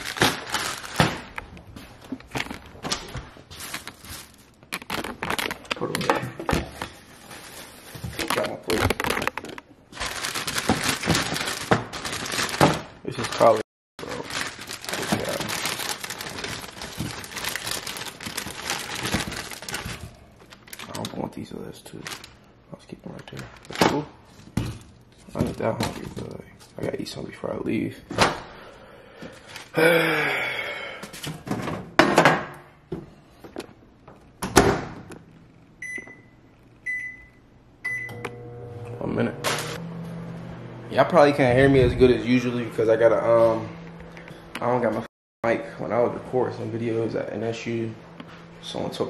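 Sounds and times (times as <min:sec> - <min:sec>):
plastic bag crinkling: 0:00.0 - 0:06.0, 0:06.9 - 0:24.4
keypad beeps: 0:35.8 - 0:38.3.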